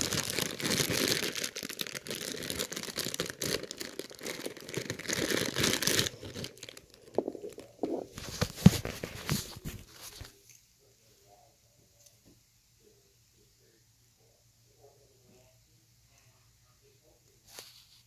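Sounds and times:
plastic bag crinkling and tearing: 0.0 - 10.3.

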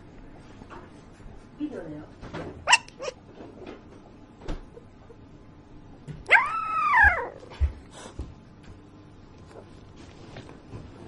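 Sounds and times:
puppy whimpering: 2.7 - 3.2, 6.3 - 7.5.

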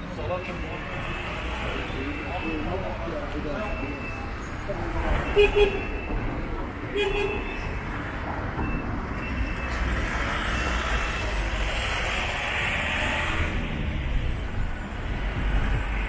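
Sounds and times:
rumble of cars: 0.0 - 16.0
vehicle passing close: 9.7 - 16.0.

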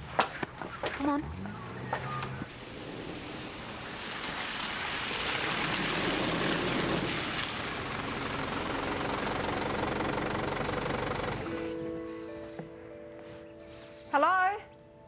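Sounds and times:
tyres on wet mud: 0.0 - 11.6
vehicle engine running: 5.6 - 11.8.

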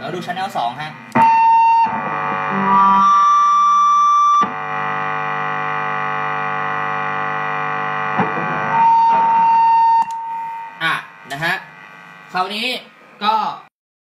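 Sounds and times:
buzzing drone with overtones: 1.1 - 12.7
distortion pedal high whistle: 1.2 - 10.8.

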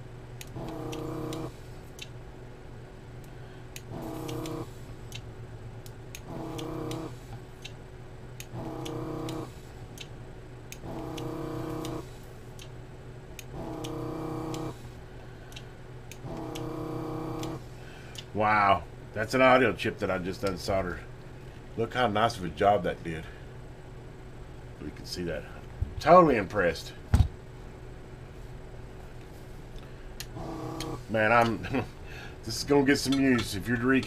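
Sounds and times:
steady low hum: 0.0 - 34.0
vacuum pump bursts: 0.4 - 1.7, 3.8 - 5.2, 6.1 - 7.6, 8.4 - 10.1, 10.7 - 12.3, 13.4 - 15.0, 16.1 - 18.1, 30.0 - 33.6.

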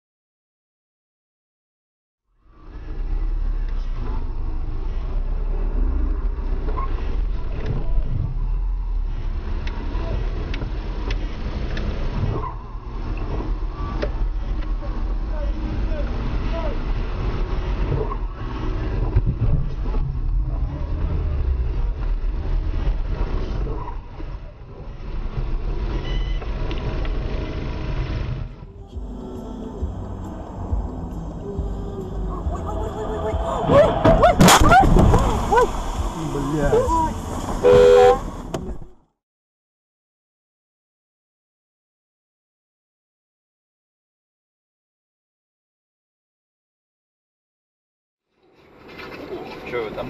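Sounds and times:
car engine rumble: 2.3 - 39.2, 48.3 - 50.0
road noise: 2.3 - 39.2, 48.2 - 50.0
high-pitched beep: 26.0 - 26.4.

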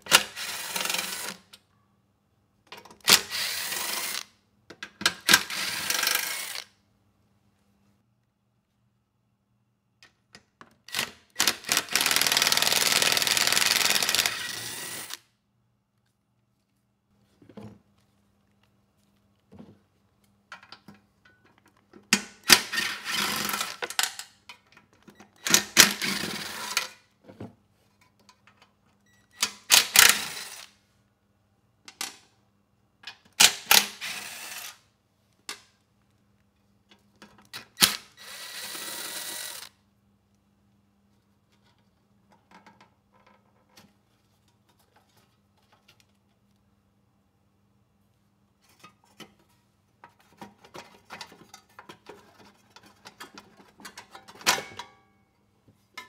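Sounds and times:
cordless impact driver bursts: 11.0 - 15.2, 33.5 - 34.8, 37.8 - 39.7.

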